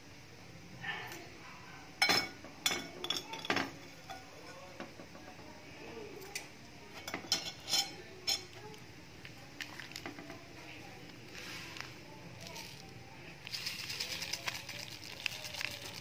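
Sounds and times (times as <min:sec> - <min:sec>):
metal spoon clinking on china: 0:02.0 - 0:04.6, 0:07.0 - 0:08.5.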